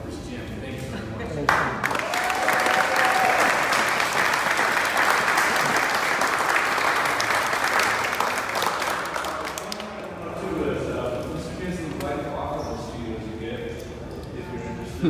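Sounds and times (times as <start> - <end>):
crowd applauding: 1.5 - 10.2.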